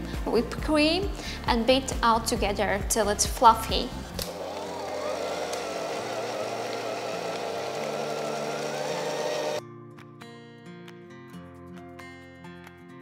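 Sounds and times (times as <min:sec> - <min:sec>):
background music: 0:00.0 - 0:13.0
electric hand mixer whining: 0:04.2 - 0:09.6.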